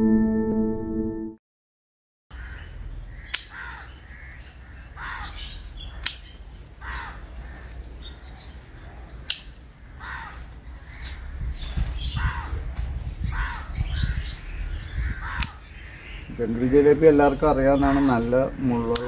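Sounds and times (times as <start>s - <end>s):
birds calling: 2.3s - 19.0s
shears snipping branches: 3.3s - 3.8s, 5.9s - 7.9s, 9.2s - 10.6s, 15.3s - 16.1s.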